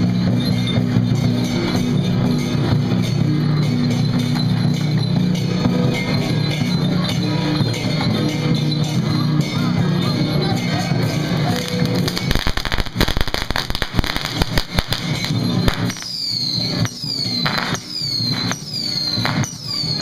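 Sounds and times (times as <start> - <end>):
ringing percussion strikes: 0.0 - 20.0
firecrackers crackling: 10.6 - 20.0.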